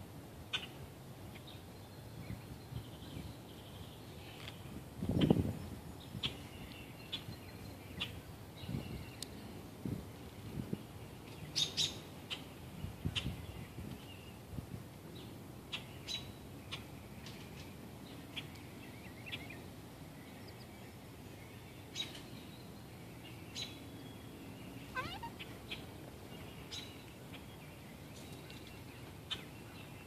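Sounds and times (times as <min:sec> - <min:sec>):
birds chirping: 0:15.1 - 0:30.0.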